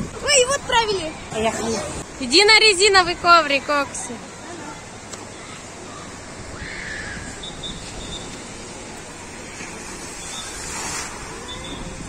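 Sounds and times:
water rushing down a slide: 6.5 - 12.0.

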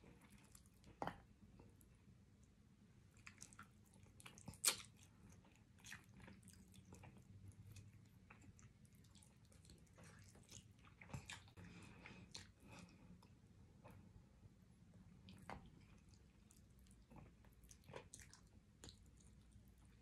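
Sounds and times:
person chewing meat: 3.1 - 14.0, 15.2 - 20.0
wet mouth clicks and smacks: 4.3 - 5.0.

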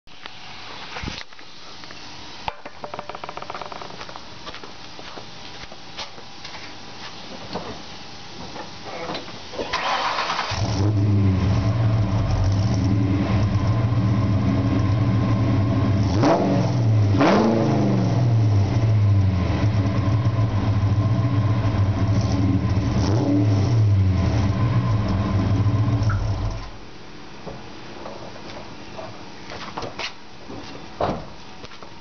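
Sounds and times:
car engine idling: 9.7 - 16.1
car engine revving: 9.7 - 26.7.

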